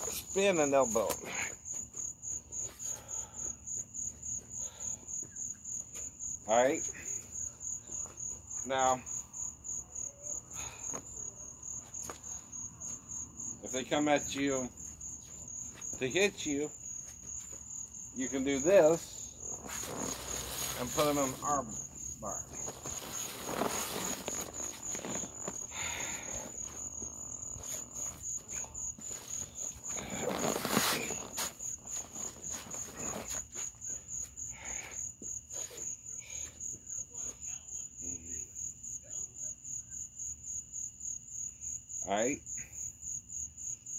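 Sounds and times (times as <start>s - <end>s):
crickets chirping: 0.0s - 43.9s
rustling whoosh: 22.6s - 25.6s.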